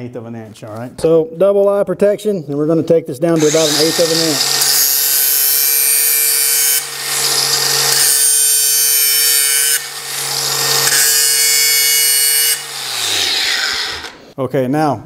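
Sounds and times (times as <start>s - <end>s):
grinder motor hum: 3.4s - 14.2s
angle grinder screeching on steel: 3.4s - 14.4s.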